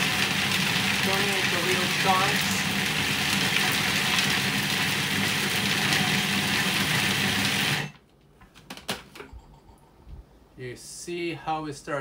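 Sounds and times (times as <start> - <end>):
food processor grinding: 0.0 - 8.0.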